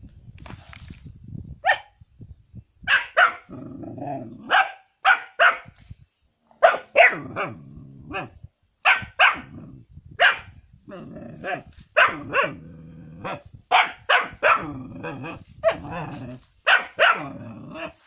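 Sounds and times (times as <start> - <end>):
puppy barking: 1.6 - 1.9, 2.9 - 3.5, 4.5 - 5.7, 6.6 - 9.5, 10.2 - 10.5, 11.4 - 12.6, 13.2 - 14.8, 15.6 - 16.0, 16.6 - 18.0
puppy growling: 3.5 - 4.5, 10.9 - 13.4, 14.6 - 16.4, 17.2 - 18.0.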